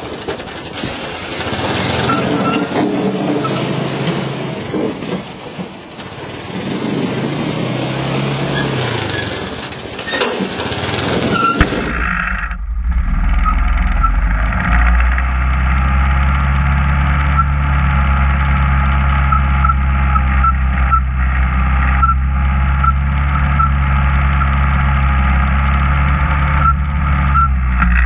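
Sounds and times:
atv engine running: 10.8 - 28.0.

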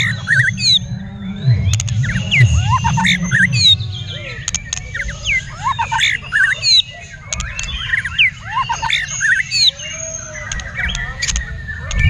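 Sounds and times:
low rumble: 0.0 - 5.0, 11.6 - 12.0
songbird whistling: 0.0 - 12.0.

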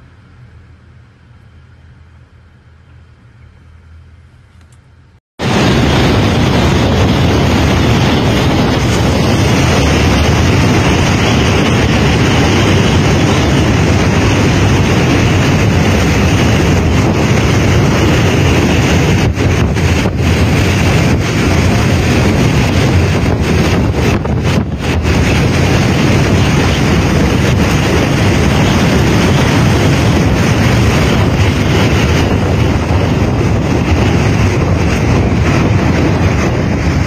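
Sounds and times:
strong wind: 0.0 - 37.0
driving rain: 5.4 - 37.0
wind buffeting microphone: 5.4 - 37.0.

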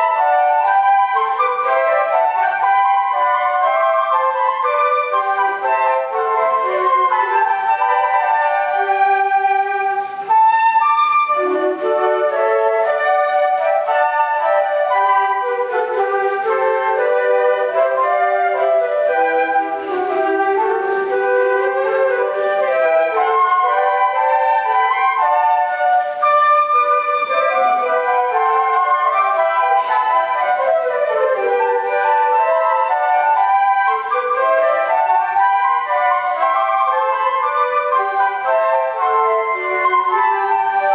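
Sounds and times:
flute ensemble playing: 0.0 - 40.9.

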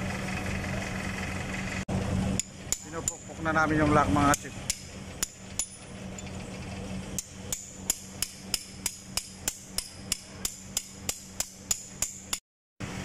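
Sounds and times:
hammer striking metal: 2.4 - 6.0, 7.2 - 12.4.

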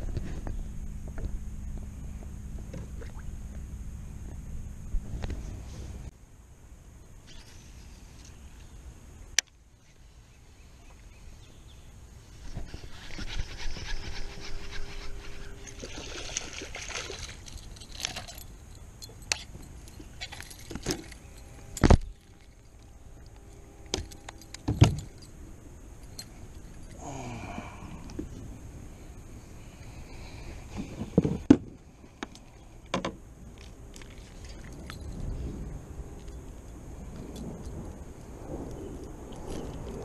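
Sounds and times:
fishing gear jingling and clicking: 12.9 - 25.4, 26.0 - 27.0, 33.6 - 35.4.

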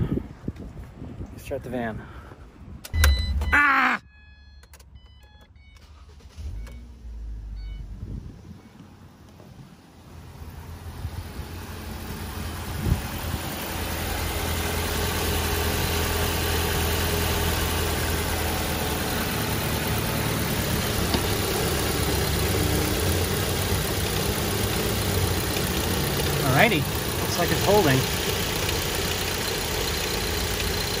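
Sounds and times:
car engine idling: 8.5 - 31.0.

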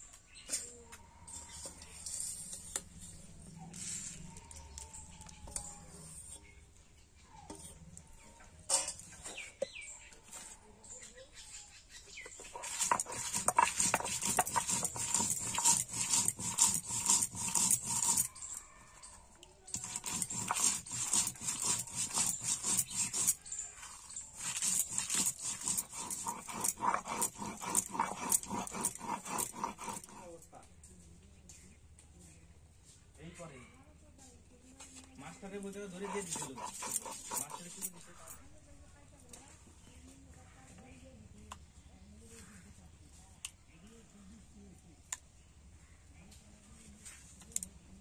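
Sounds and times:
stone grinding on stone slab: 12.2 - 18.8, 19.7 - 30.4, 35.8 - 38.4.

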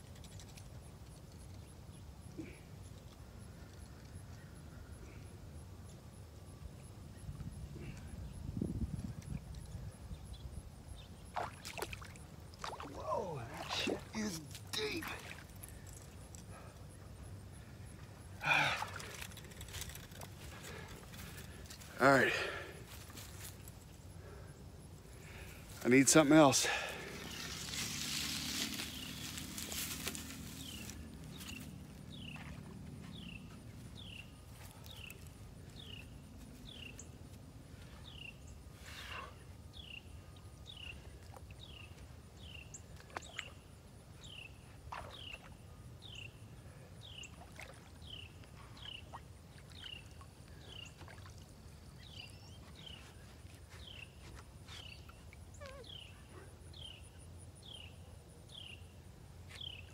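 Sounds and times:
high insect trill: 8.5 - 32.4
water sloshing from wading: 11.3 - 16.5, 47.2 - 51.9.

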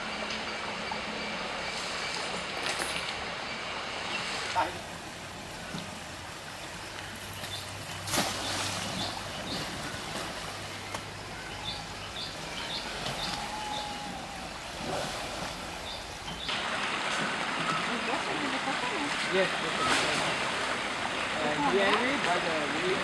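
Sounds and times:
stream water running and splashing: 0.0 - 23.0
sharp splash: 7.5 - 11.0, 16.4 - 22.4.

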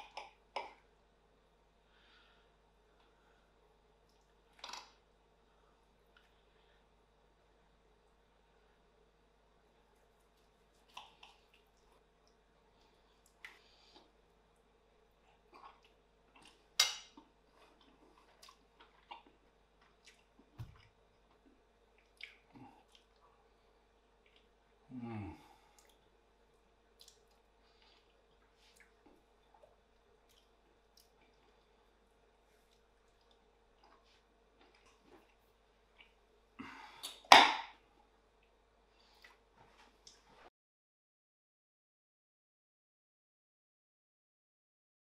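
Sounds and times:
chewing and wet mouth clicks: 10.2 - 12.4, 17.6 - 20.5, 21.3 - 23.3, 24.2 - 24.5, 25.8 - 26.1, 27.0 - 31.6, 32.7 - 36.2.

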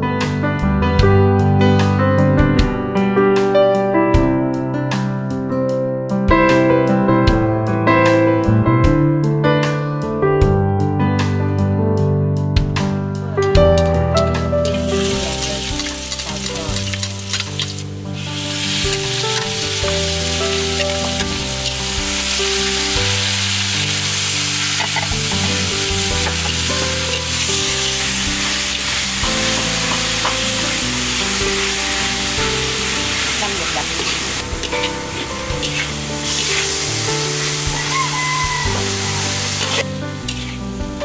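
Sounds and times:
background music: 0.0 - 41.0
food sizzling in a pan: 14.6 - 41.0.

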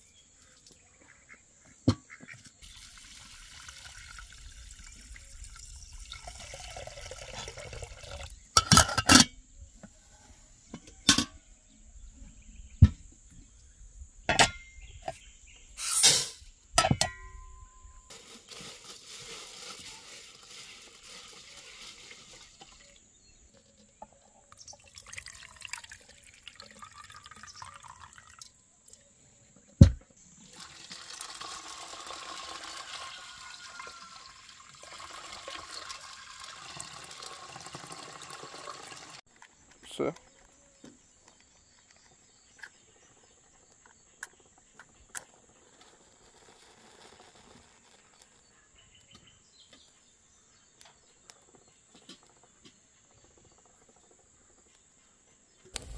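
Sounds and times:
water pouring into metal pot: 2.6 - 9.0, 18.1 - 23.0, 24.5 - 28.6, 30.4 - 39.2.

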